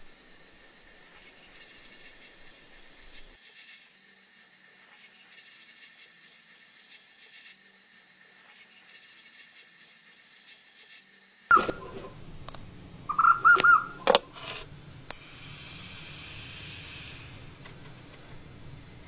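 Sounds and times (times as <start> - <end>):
sandblast nozzle hissing: 0.0 - 3.4, 14.3 - 17.6.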